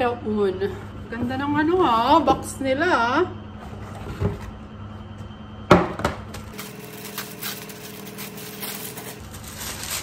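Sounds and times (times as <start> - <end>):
tissue paper rustling: 6.6 - 10.0.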